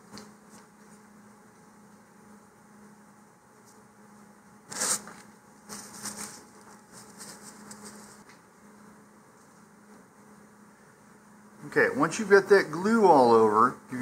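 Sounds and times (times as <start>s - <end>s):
paper rustling and sliding: 4.7s - 8.3s.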